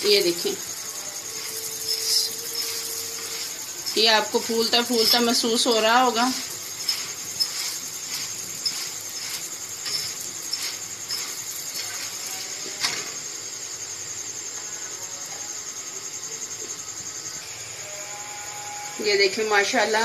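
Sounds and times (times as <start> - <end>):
flatbread sizzling in oil: 0.0 - 14.6.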